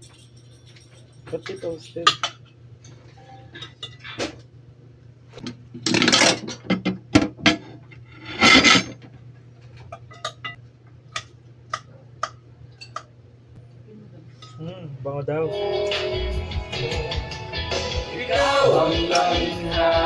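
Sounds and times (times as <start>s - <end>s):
cutlery scraping on plates: 5.4s - 9.0s, 9.9s - 10.6s.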